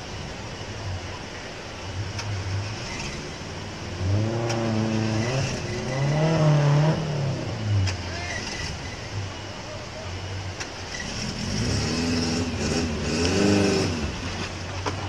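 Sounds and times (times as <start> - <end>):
engine revving under load: 2.1 - 9.2, 10.6 - 14.6.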